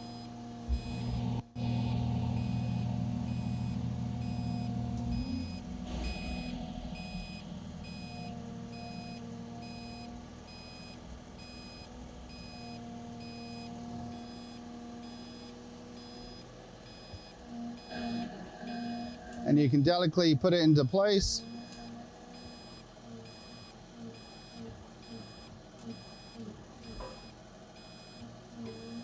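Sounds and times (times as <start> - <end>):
excavator diesel engine: 0.0 - 12.4, 16.6 - 23.2
hydraulic whine: 0.0 - 20.0, 20.6 - 29.0.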